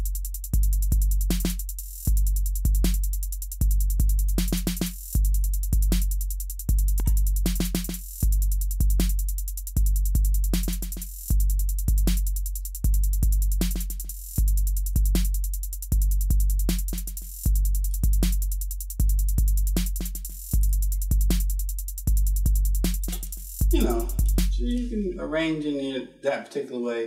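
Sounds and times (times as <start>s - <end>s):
rapid ticking hi-hats: 0.0s - 25.0s
deep bass kicks: 5.2s - 7.5s, 15.9s - 16.7s, 19.0s - 19.8s, 20.6s - 24.8s
sharp drum hits: 23.0s - 24.6s.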